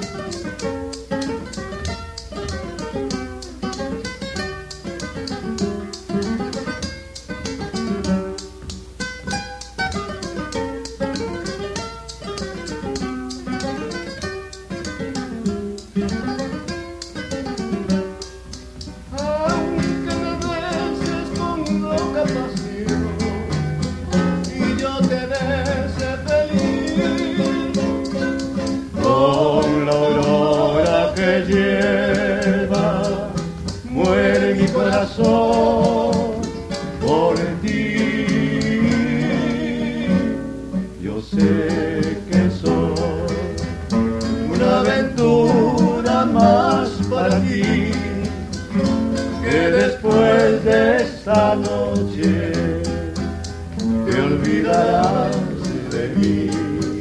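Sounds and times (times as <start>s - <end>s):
maracas shaking: 0.0s - 57.0s
plucked acoustic guitars: 0.0s - 57.0s.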